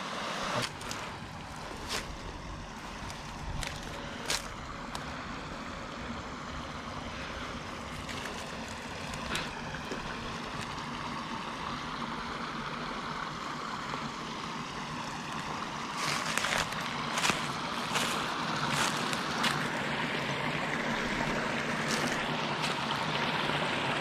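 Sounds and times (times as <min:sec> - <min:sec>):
small waterfall rushing: 0:00.0 - 0:24.0
short crunches: 0:00.6 - 0:05.1, 0:16.0 - 0:19.7.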